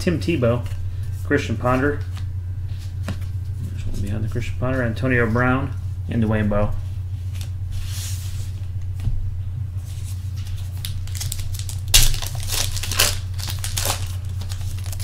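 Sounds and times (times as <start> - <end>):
low steady hum: 0.0 - 15.0
wrapper tearing and crinkling: 10.8 - 15.0.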